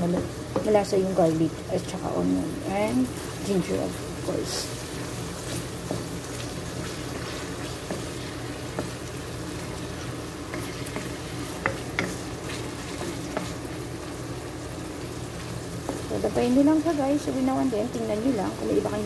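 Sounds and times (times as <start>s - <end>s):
food sizzling in oil in a wok: 0.0s - 19.0s
wooden spatula scraping a pan: 4.4s - 13.8s.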